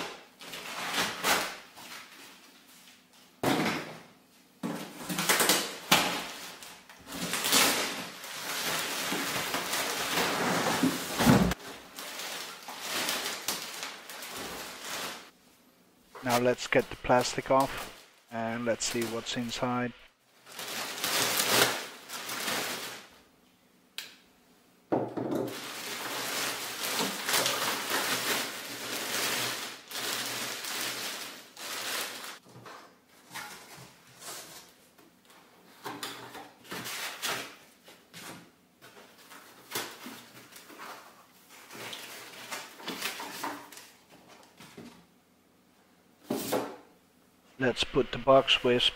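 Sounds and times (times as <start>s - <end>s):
packing pieces handled: 4.8s - 15.3s, 25.5s - 32.4s
plastic bag crinkling: 6.3s - 15.3s, 20.4s - 23.1s, 25.6s - 32.4s.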